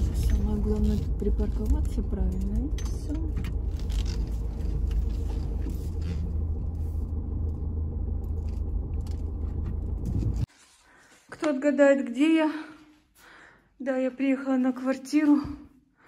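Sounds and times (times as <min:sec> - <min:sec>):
car rumble from inside cabin: 0:00.0 - 0:10.5.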